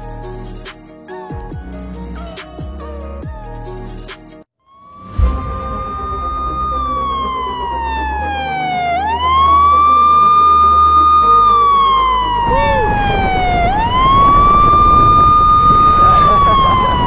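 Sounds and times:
emergency siren wailing: 4.7s - 17.0s.

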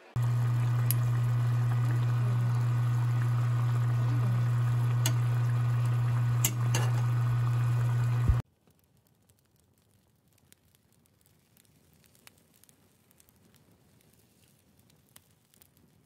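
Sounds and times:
low steady hum: 0.0s - 8.4s
stew bubbling in a pot: 0.1s - 8.4s
spoon clicking against pot: 6.4s - 7.0s.

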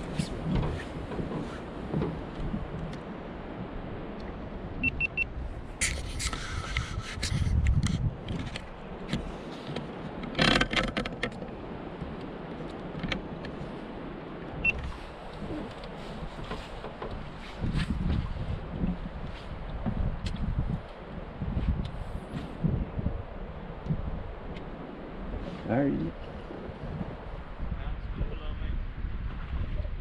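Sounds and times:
short high beeps: 4.8s - 5.3s.

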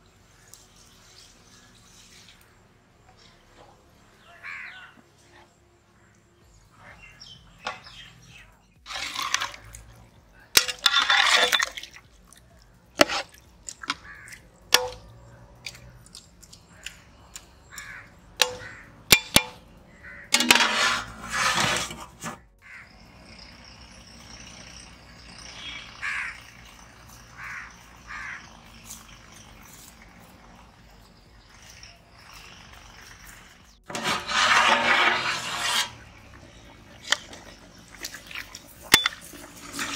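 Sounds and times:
steel utensils clinking on pot: 10.6s - 11.9s, 20.3s - 21.1s, 38.8s - 39.9s
bird calls: 13.7s - 19.0s, 22.6s - 33.8s
scraping rushes: 20.3s - 22.4s, 33.8s - 37.4s
insects: 22.6s - 33.7s.

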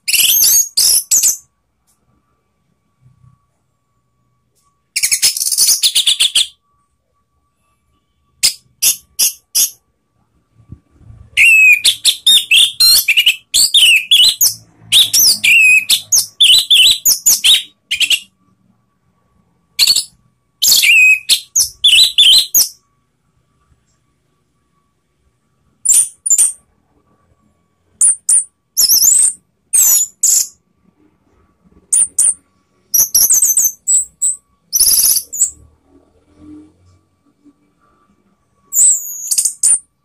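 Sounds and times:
bird singing whistled notes: 0.0s - 1.5s, 5.0s - 6.6s, 7.6s - 9.8s, 11.2s - 18.3s, 19.8s - 22.8s, 25.8s - 26.6s, 28.0s - 30.6s, 31.9s - 35.7s, 38.6s - 39.9s.

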